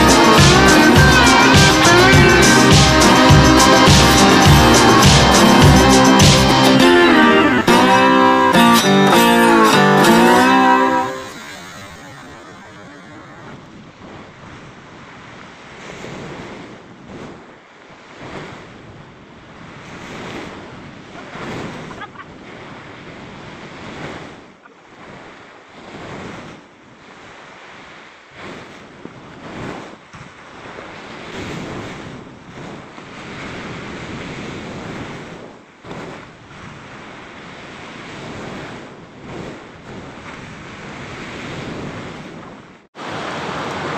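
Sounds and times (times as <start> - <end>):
wind buffeting microphone: 11.2 - 43.9
waves breaking on rocks: 19.5 - 43.9.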